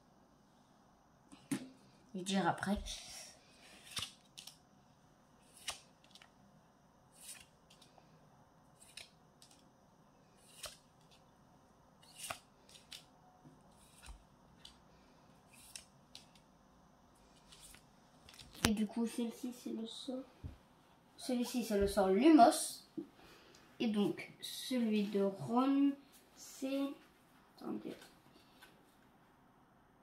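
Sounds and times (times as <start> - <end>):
cards being flipped snapping: 3.8 - 4.6, 5.4 - 6.3, 7.2 - 7.9, 8.8 - 9.7, 10.4 - 11.2, 12.0 - 13.1, 13.8 - 14.8, 15.5 - 16.5, 17.3 - 18.7.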